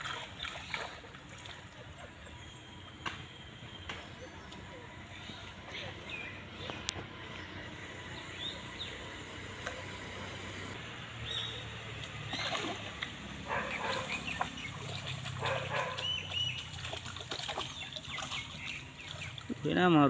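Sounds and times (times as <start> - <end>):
birds whistling: 1.9 - 19.6
dog barking: 13.5 - 14.2, 15.4 - 16.2.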